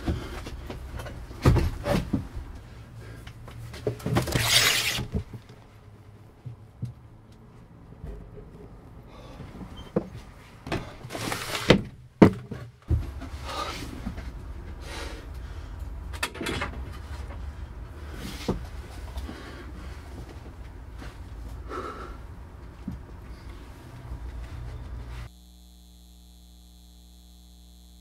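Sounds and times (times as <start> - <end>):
sharp knocks and thumps: 0.0 - 2.5, 9.4 - 13.4
rushing sliding noise: 4.2 - 5.2.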